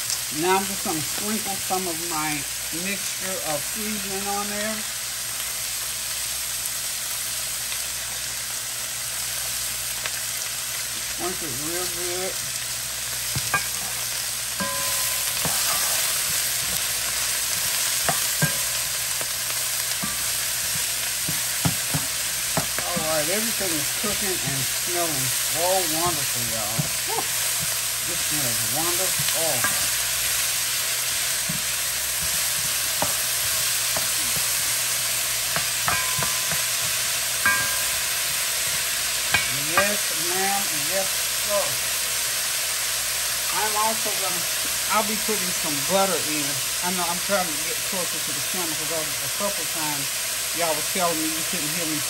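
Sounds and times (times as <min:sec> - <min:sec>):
vegetables sizzling in a pan: 0:00.0 - 0:52.0
spatula scraping and knocking pan: 0:13.3 - 0:24.8, 0:26.1 - 0:34.8, 0:35.5 - 0:40.0.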